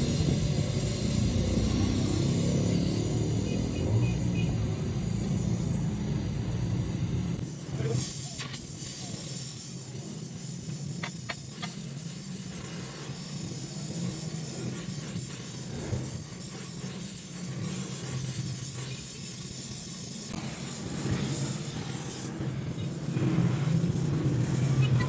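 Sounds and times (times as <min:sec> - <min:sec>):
welding torch flame hissing: 0:00.0 - 0:25.0.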